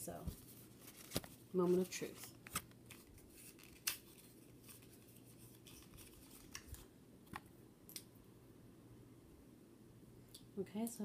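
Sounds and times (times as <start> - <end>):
packaging rustling: 0.3 - 6.9.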